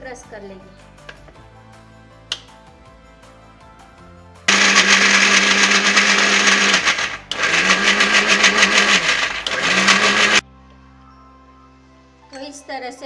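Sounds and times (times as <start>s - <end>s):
mixer grinder running: 4.5s - 10.4s.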